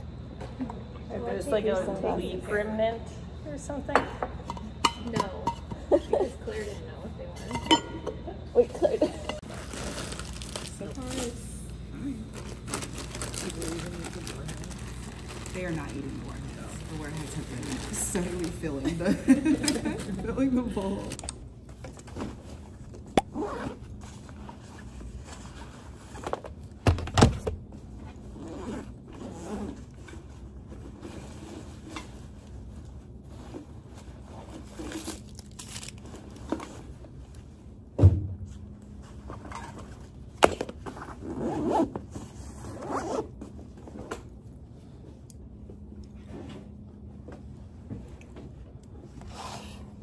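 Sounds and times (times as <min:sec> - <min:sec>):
zipper opening: 0:23.2 - 0:23.9, 0:28.2 - 0:30.0, 0:41.0 - 0:43.4, 0:49.2 - 0:49.9.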